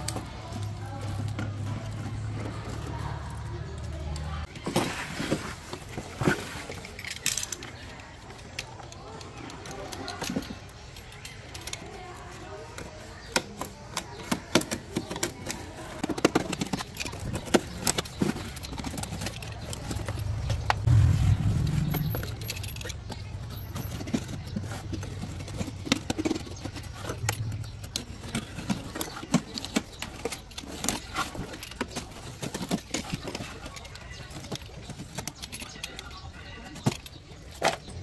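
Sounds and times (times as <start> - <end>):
metal tools clinking: 16.3 - 38.0
low hum: 19.8 - 24.3.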